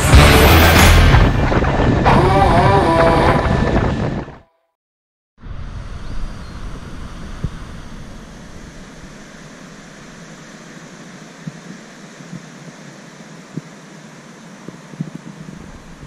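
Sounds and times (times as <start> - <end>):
wind blowing over microphone: 1.2 - 4.4, 5.4 - 9.5.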